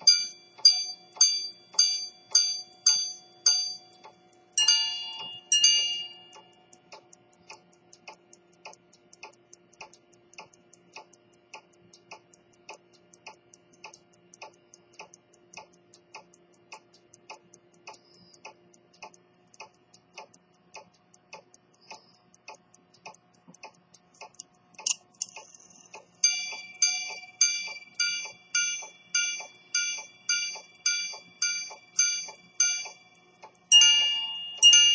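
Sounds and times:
hammers striking gongs: 0.0s - 4.0s, 4.6s - 6.3s, 26.2s - 33.0s, 33.7s - 34.9s
pocket watch ticking: 0.0s - 34.9s
sharp click: 0.0s - 34.9s.

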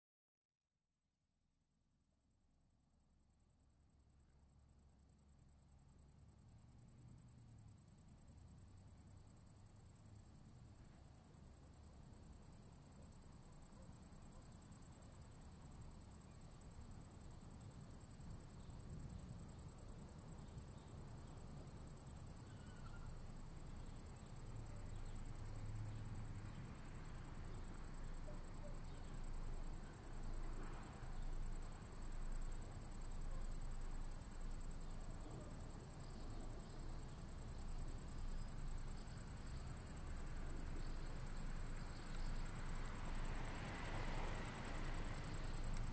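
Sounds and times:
crickets trilling: 9.8s - 45.9s.

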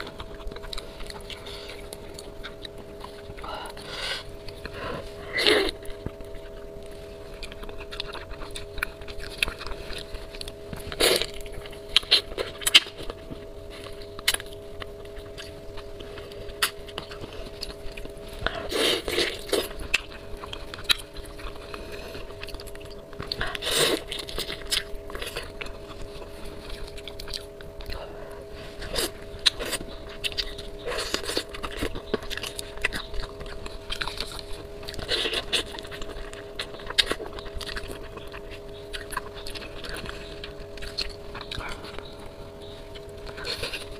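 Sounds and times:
faint hum: 0.0s - 43.9s
wet chewing and lip smacks: 0.0s - 43.9s.

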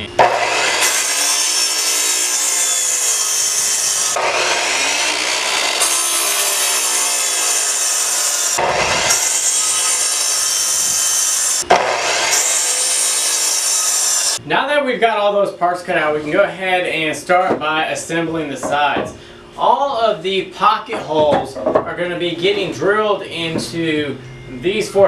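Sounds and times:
miter saw cutting lumber: 0.0s - 14.4s.

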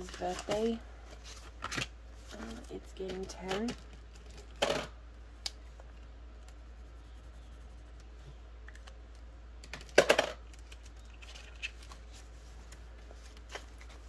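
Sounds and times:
faint low hum: 0.0s - 14.0s
plastic clicks and rustling: 8.7s - 14.0s.

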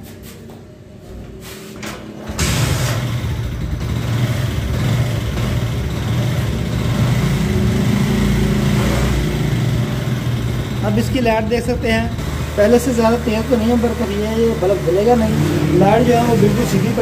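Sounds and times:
motorcycle engine starting and idling: 1.9s - 17.0s.

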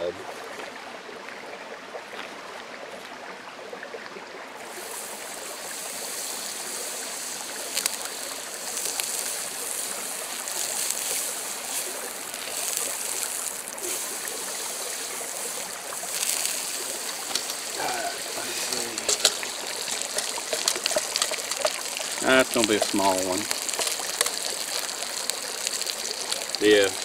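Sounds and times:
butter sizzling on griddle: 4.6s - 27.0s.

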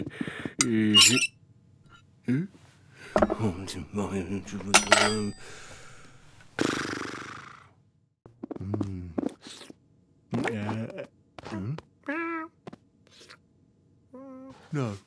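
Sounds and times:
cutlery clattering onto plate: 1.0s - 1.3s, 4.6s - 5.4s
breathy exhale: 5.4s - 6.3s.

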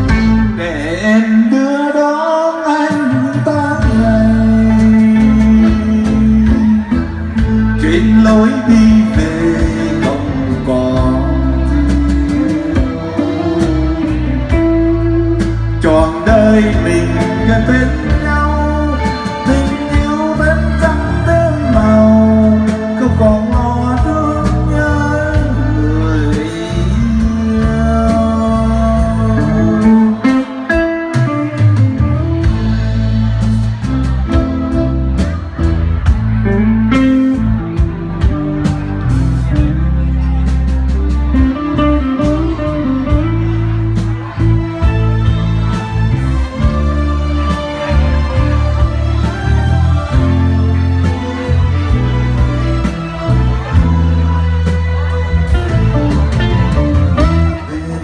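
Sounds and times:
man singing into a microphone: 0.0s - 32.6s, 56.7s - 58.0s
drums: 0.0s - 58.0s
guitar-like melody: 0.0s - 58.0s
keyboard: 0.0s - 58.0s.

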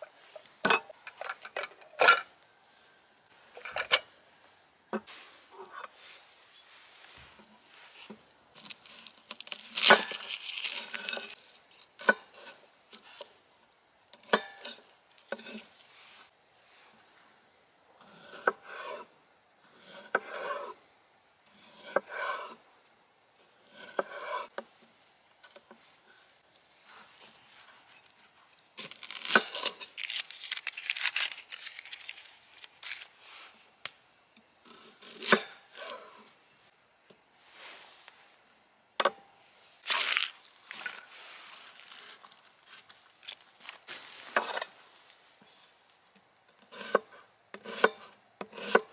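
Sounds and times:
papery crackling of garlic skins: 8.5s - 12.0s, 28.8s - 33.3s, 39.8s - 44.2s.

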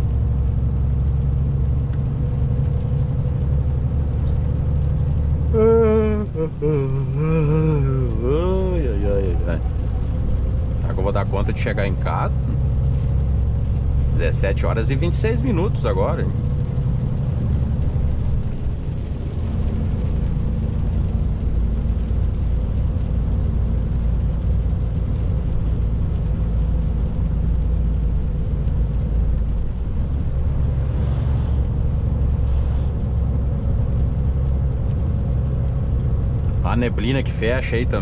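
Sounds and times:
road noise on wet highway: 0.0s - 38.0s
truck engine droning: 0.0s - 38.0s.

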